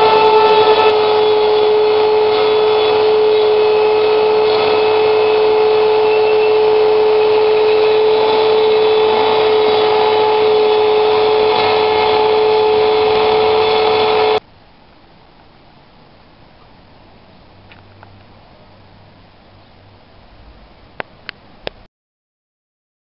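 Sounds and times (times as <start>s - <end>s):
hiss of cutting wood: 0.0s - 14.4s
router spindle whining: 0.0s - 14.4s.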